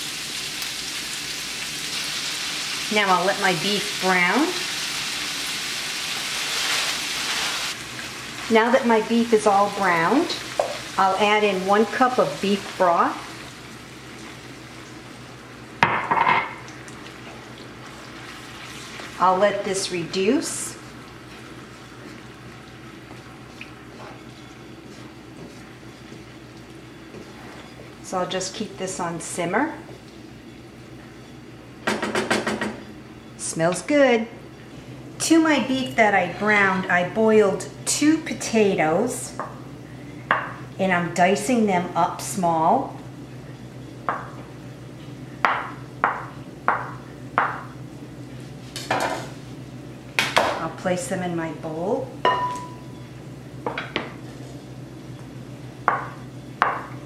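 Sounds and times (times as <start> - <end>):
meat simmering in a frying pan: 0.0 - 15.9, 16.5 - 30.4
wooden spoon stirring: 23.1 - 26.4.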